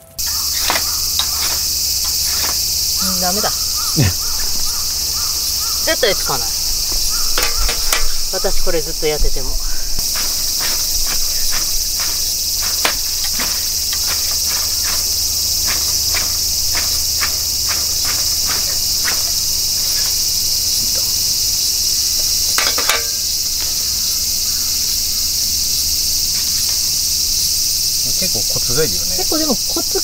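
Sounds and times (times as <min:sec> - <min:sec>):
fire-starter rod scraping: 0:00.0 - 0:20.8, 0:22.1 - 0:23.8
insect chorus: 0:00.0 - 0:30.0.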